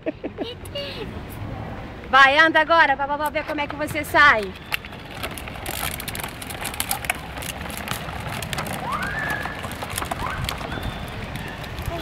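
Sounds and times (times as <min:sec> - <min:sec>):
plastic wheels rattling on concrete: 0:03.2 - 0:12.0.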